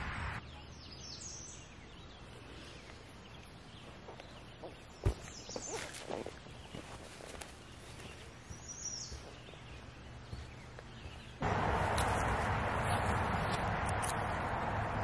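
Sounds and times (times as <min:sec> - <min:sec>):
soft steps on loose soil: 0:02.5 - 0:14.4.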